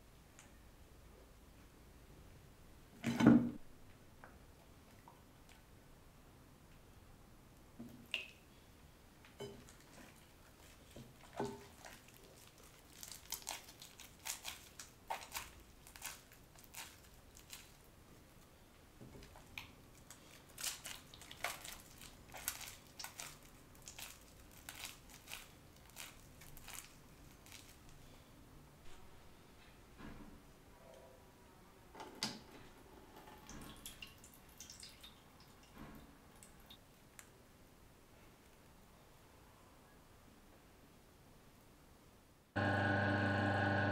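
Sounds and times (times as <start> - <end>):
sticky rice dough squelching: 9.7 - 18.0, 19.2 - 28.0.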